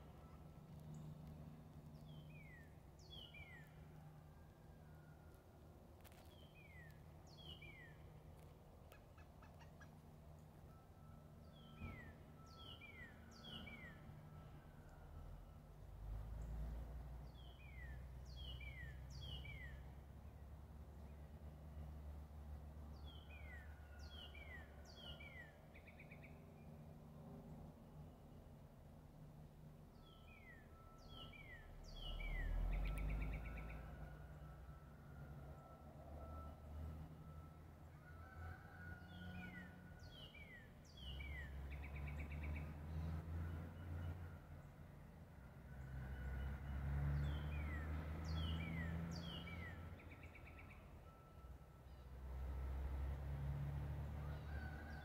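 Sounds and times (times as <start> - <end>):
songbird singing: 0.0 - 21.6, 22.4 - 28.5, 29.3 - 38.1, 39.0 - 44.9, 45.8 - 52.2.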